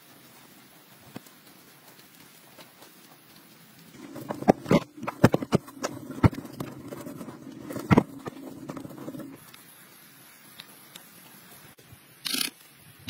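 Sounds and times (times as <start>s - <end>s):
soil being dug and scraped: 0.0s - 9.6s.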